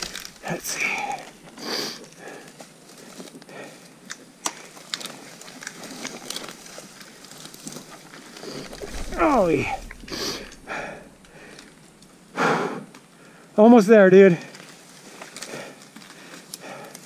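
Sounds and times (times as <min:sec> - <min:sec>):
twigs snapping: 0:00.0 - 0:01.4, 0:04.0 - 0:12.1.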